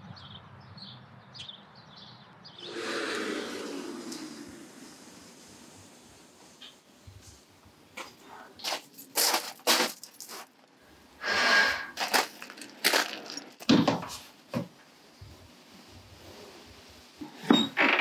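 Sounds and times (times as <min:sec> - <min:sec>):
footsteps on gravel: 0:08.0 - 0:10.6, 0:11.9 - 0:13.7
keys rattling: 0:12.0 - 0:13.7.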